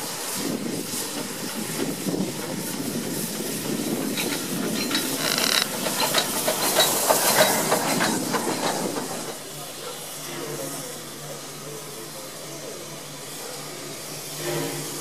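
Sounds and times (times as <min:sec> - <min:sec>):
steam hissing: 0:00.0 - 0:15.0
locomotive wheels clattering on track: 0:00.9 - 0:10.2
high squeal: 0:05.1 - 0:05.7.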